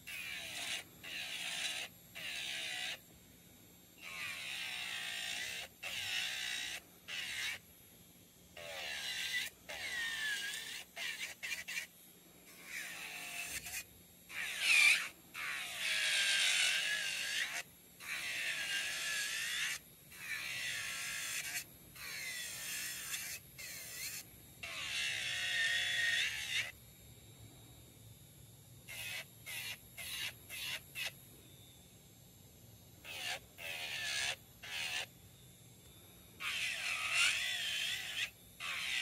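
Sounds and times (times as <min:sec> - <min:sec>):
nail drill whining: 0:08.6 - 0:11.9, 0:12.5 - 0:26.8, 0:33.1 - 0:35.1, 0:36.4 - 0:39.0.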